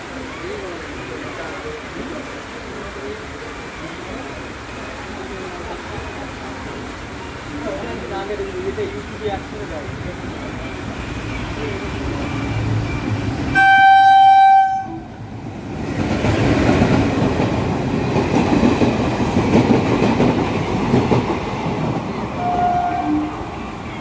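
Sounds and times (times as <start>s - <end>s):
train coaches rumbling: 0.0s - 24.0s
locomotive horn blast: 13.5s - 15.1s, 22.4s - 23.5s.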